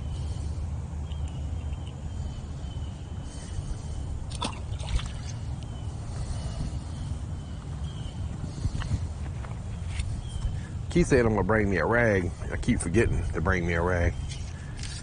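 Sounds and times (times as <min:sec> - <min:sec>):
steady low rumble: 0:00.0 - 0:15.0
fish splashing into water: 0:04.3 - 0:05.4.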